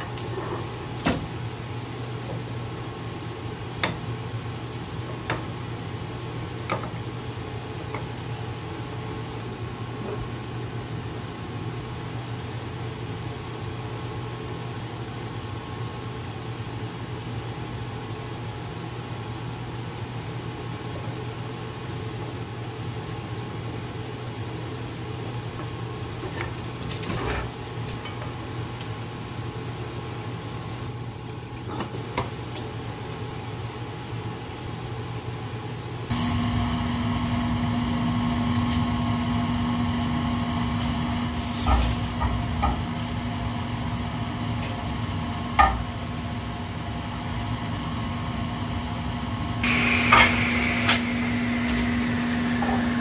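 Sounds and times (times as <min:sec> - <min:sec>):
workshop machine humming: 0:36.0 - 0:53.0.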